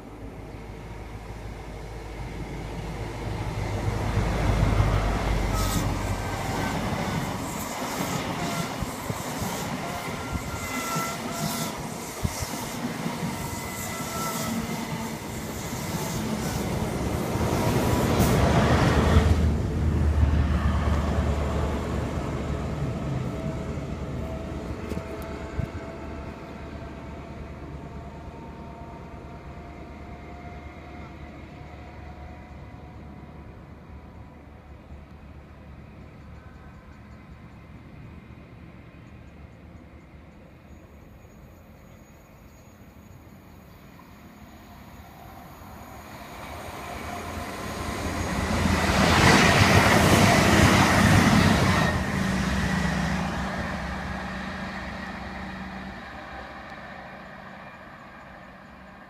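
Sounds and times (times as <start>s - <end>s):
diesel train engine passing: 0.0s - 59.0s.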